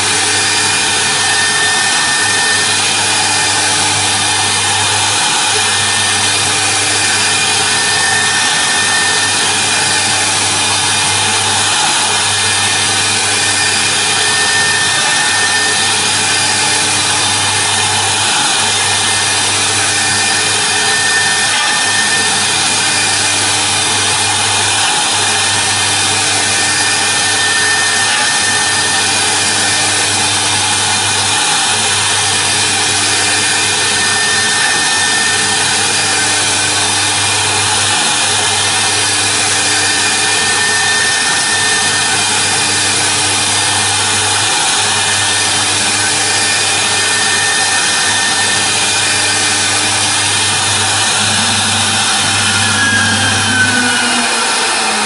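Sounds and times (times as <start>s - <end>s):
router spindle machining: 0.0s - 55.0s
low hum: 43.2s - 55.0s.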